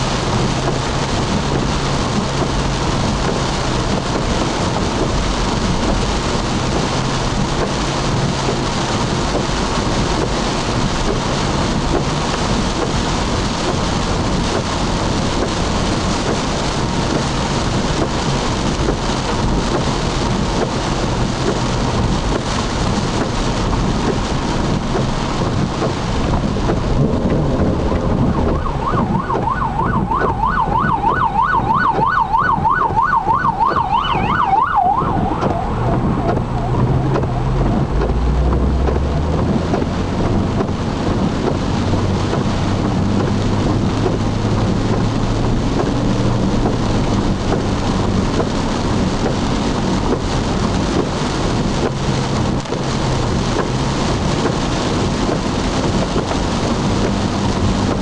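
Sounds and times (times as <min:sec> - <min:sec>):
heavy rain on a car: 0:00.0 - 0:58.0
tyres on wet road: 0:00.0 - 0:58.0
emergency siren yelping: 0:27.6 - 0:39.9.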